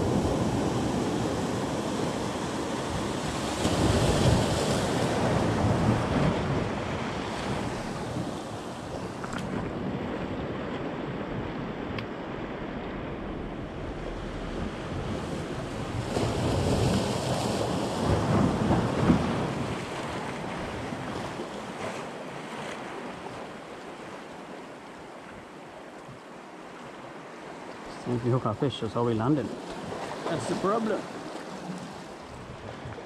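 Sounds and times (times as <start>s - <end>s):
surf breaking on beach: 0.0s - 22.2s, 29.2s - 33.0s
wind on microphone: 0.0s - 22.6s, 31.6s - 33.0s.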